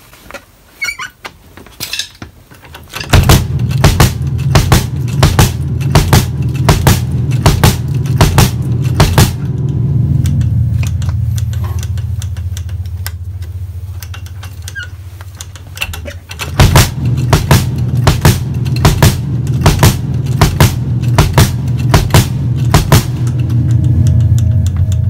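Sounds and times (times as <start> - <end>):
drum pedal clicks: 2.2 - 25.0
bass drum kicks: 3.1 - 11.2, 16.5 - 24.8.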